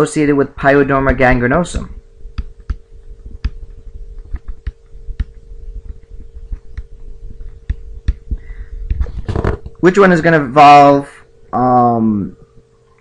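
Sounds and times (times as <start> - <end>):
faint electrical hum: 0.0 - 13.0
stylus clicking on tablet: 2.3 - 8.2.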